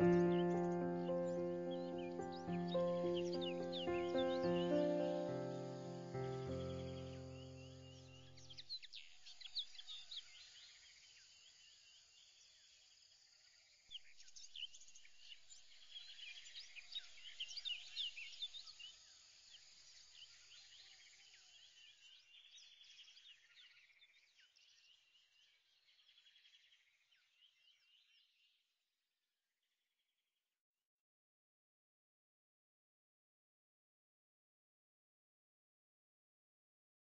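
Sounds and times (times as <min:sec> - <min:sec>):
birds chirping: 0:00.0 - 0:10.0.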